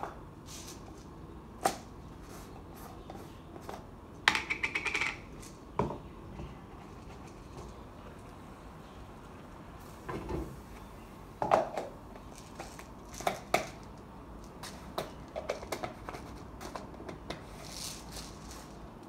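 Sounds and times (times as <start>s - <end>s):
containers and utensils knocking: 4.3s - 6.1s.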